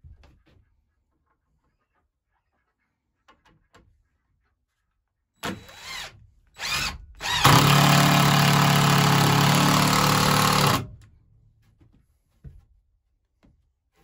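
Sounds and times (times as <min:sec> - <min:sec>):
power drill whirring: 0:05.4 - 0:10.9.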